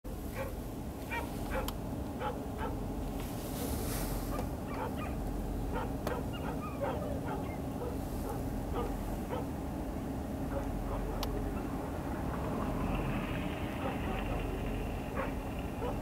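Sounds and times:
steady low rumble: 0.1s - 16.0s
dogs howling and yelping: 0.4s - 2.8s, 4.7s - 9.5s, 10.5s - 11.8s, 13.8s - 16.0s.

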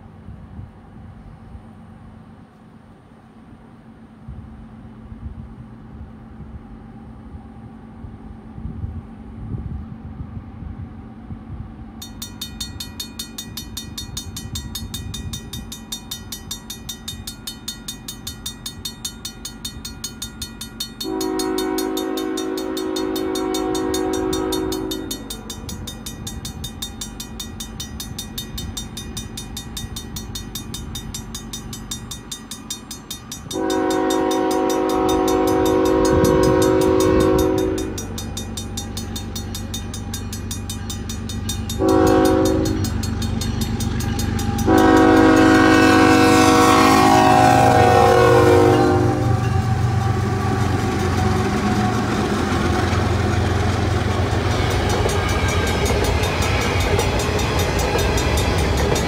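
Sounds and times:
train horn blasts: 21.0s - 25.5s, 33.5s - 38.2s, 41.8s - 43.1s, 44.2s - 56.9s
locomotives rumbling: 49.2s - 59.0s
level-crossing bell ringing: 54.5s - 59.0s.

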